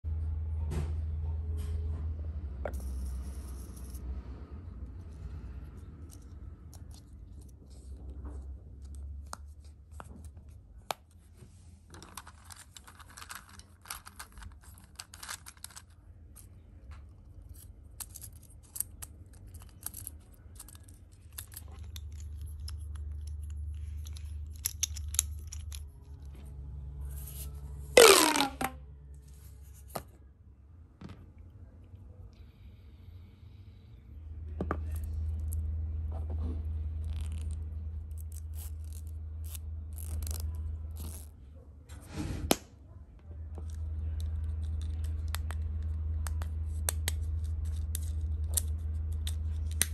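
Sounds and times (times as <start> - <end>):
plastic pop tube pulled: 28.0 - 28.8.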